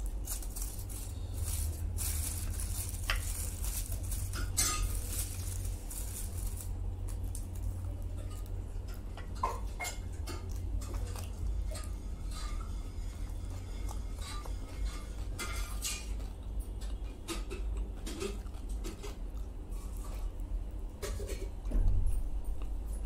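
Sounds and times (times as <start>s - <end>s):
aluminium foil crinkling: 0.0s - 21.5s
person chewing: 0.0s - 21.6s.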